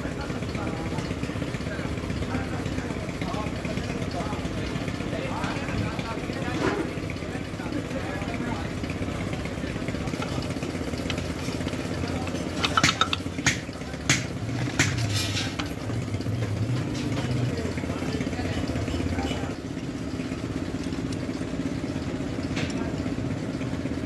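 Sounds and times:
engine running: 0.0 - 24.0
metal tools clinking: 11.1 - 13.6.

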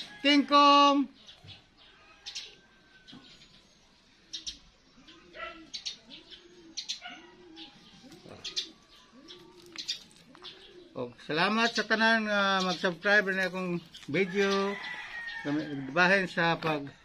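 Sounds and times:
small birds chirping: 0.8 - 17.0
dove cooing: 4.2 - 12.0.

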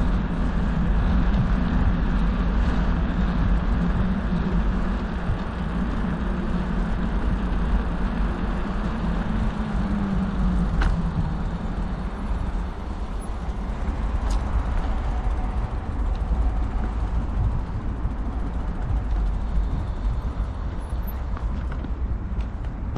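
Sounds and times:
bicycle tyres rolling on pavement: 0.0 - 22.9
wind on microphone: 0.0 - 22.9.

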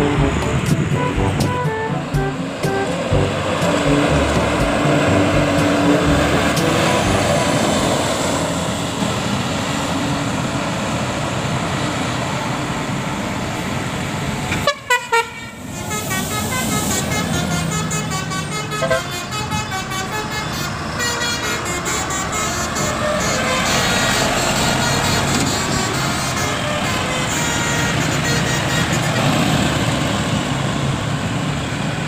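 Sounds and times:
multi-tone bus horn melody: 0.0 - 8.5, 14.5 - 30.0
heavy vehicles passing: 0.0 - 32.0.

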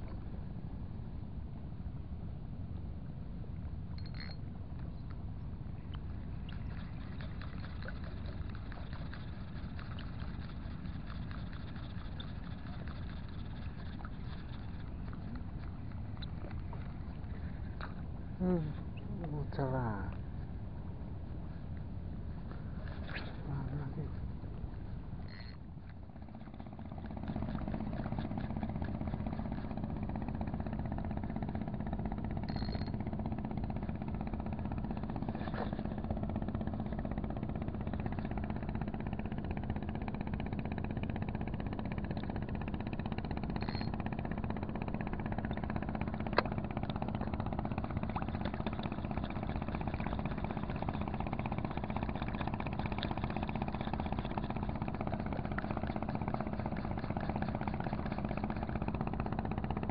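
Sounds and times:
engine running steadily: 0.0 - 59.9.

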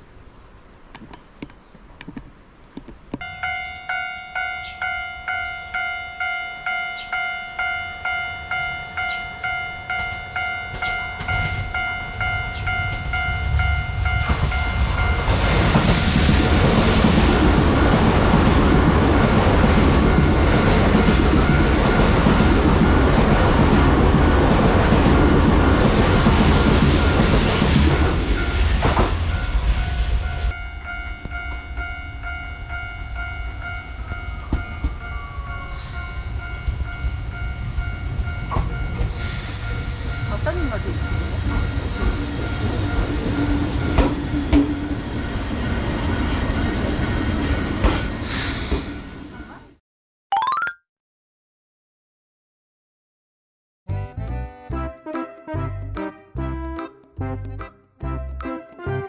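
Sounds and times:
level-crossing bell ringing: 3.2 - 15.8, 29.3 - 44.0
train wheels rumbling on rail: 8.8 - 32.4, 33.1 - 49.6.

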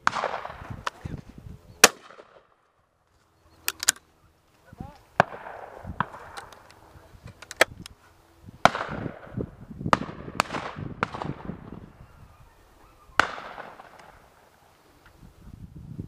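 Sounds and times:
shotgun shots: 0.0 - 0.8, 1.8 - 2.6, 5.2 - 6.5, 8.6 - 11.5, 13.2 - 14.2.

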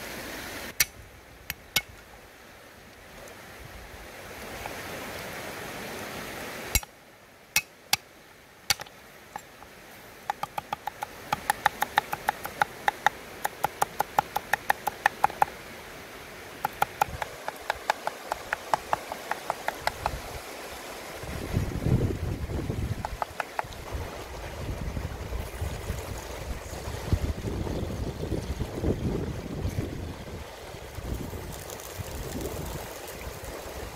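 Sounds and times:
cleaver chopping on wooden block: 8.7 - 9.5, 10.3 - 15.5, 16.6 - 20.2, 23.0 - 23.7.

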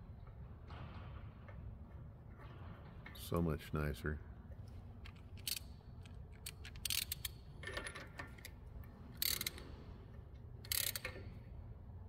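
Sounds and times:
socket ratchet clicking: 5.1 - 8.6, 9.2 - 9.6, 10.6 - 11.3.

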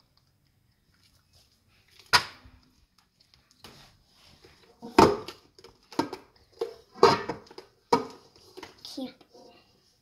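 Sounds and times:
hands squishing wet slime: 0.0 - 4.6.

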